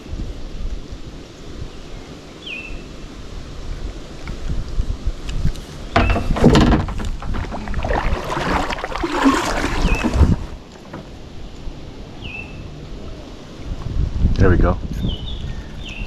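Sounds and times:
knocking and rustling in kayak: 5.4s - 11.3s.

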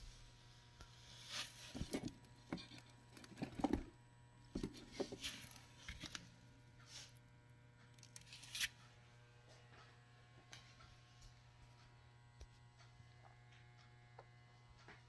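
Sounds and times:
steady low hum: 0.0s - 15.0s
handling rustles and taps: 1.5s - 3.9s, 4.5s - 6.2s.

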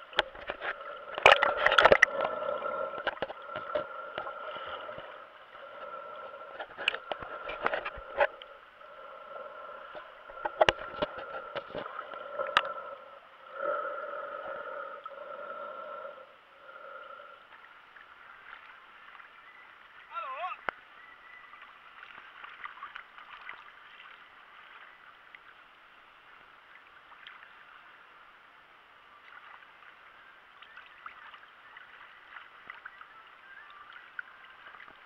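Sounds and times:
muffled underwater hum: 0.0s - 22.6s.

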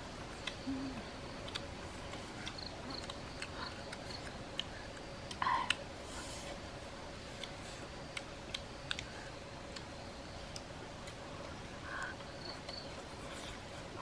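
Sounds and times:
faint steady hum: 0.0s - 14.0s
eating clicks and smacks: 0.3s - 0.7s, 1.3s - 5.9s, 7.3s - 9.9s.

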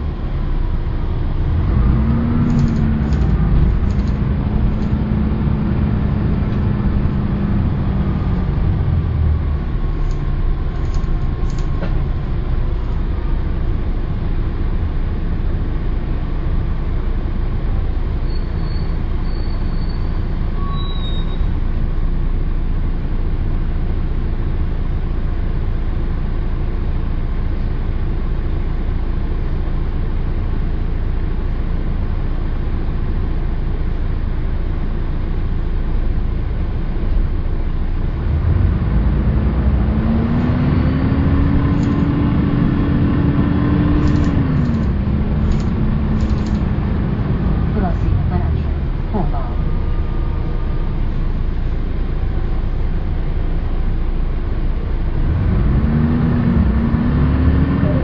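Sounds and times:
bus diesel engine rumble: 0.0s - 58.0s.

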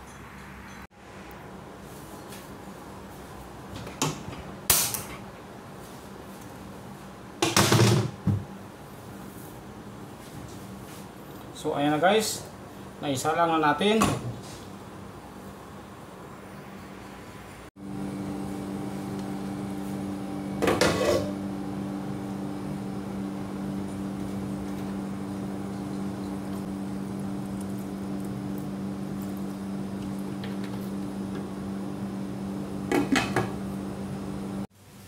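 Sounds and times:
steady low hum: 15.1s - 34.7s.

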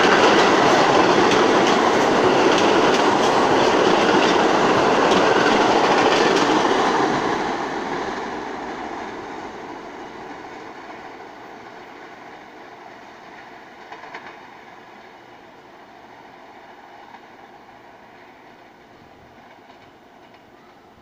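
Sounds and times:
wheels clacking over rail joints: 0.0s - 9.3s
subway train wheels rumbling: 0.0s - 21.0s.

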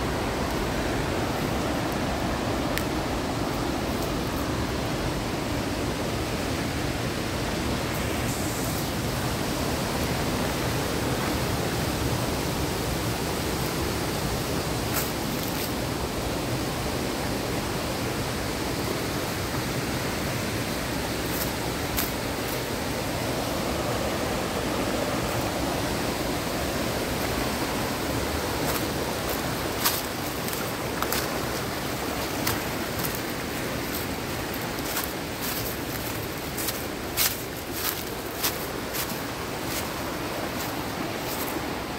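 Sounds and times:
stream rushing over rocks: 0.0s - 41.9s
footsteps crunching on stones and leaves: 21.2s - 22.7s, 27.1s - 41.9s.

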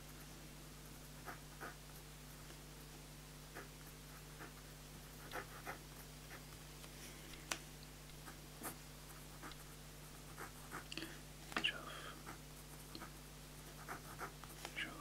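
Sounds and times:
pen scratching on paper: 5.2s - 6.4s, 8.2s - 10.9s, 12.2s - 14.6s.

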